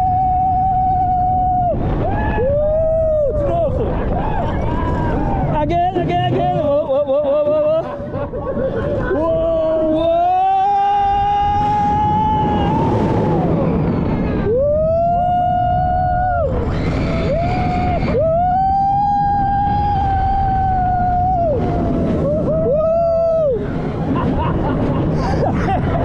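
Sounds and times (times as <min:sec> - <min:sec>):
riders screaming: 0:00.0 - 0:05.6, 0:09.2 - 0:24.1
roar of wind and train: 0:00.0 - 0:26.0.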